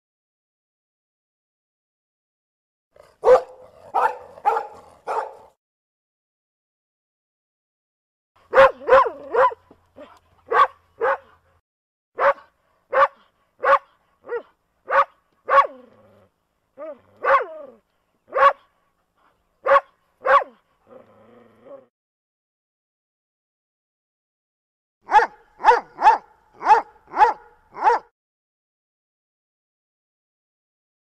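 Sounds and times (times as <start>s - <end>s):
dog barking: 3.2s - 5.6s, 8.5s - 11.4s, 12.2s - 15.8s, 16.8s - 18.7s, 19.6s - 20.6s, 25.0s - 28.1s.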